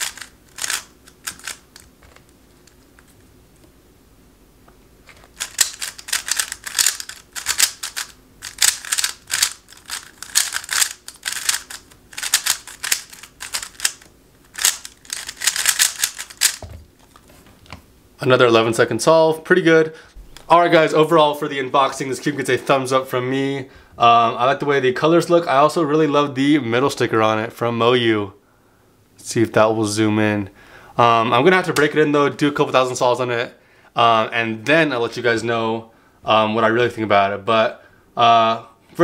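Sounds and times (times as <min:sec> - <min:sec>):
plastic puzzle cube clicking: 0:00.0 - 0:02.8, 0:05.1 - 0:16.6.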